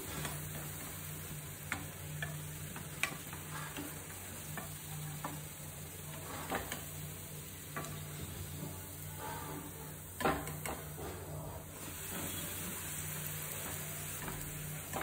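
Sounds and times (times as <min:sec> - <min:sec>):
fritters sizzling in oil: 0:00.0 - 0:15.0
steel spoon scraping a pan: 0:08.2 - 0:10.0, 0:10.7 - 0:12.8.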